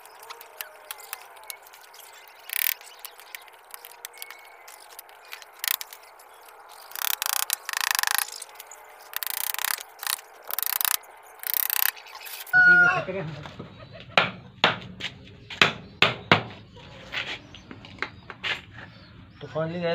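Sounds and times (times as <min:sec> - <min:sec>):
rasping ratchet-like scraping: 0:00.0 - 0:12.6
hand tool clicks: 0:02.5 - 0:06.0, 0:06.8 - 0:08.4, 0:09.1 - 0:12.0.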